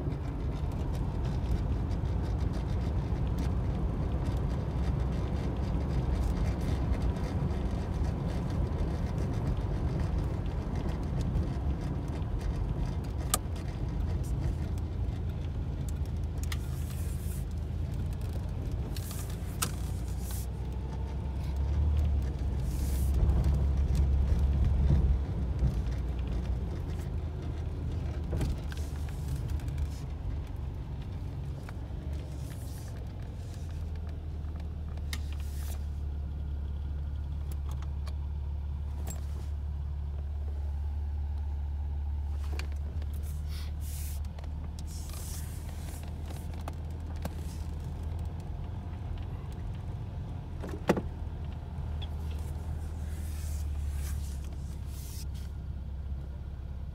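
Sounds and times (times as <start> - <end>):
car engine and tyres rumbling: 0.0 - 56.9.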